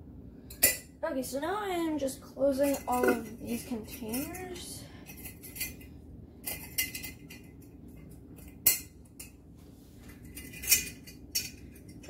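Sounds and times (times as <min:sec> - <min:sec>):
glass lids clinking and knocking: 0:10.2 - 0:12.0.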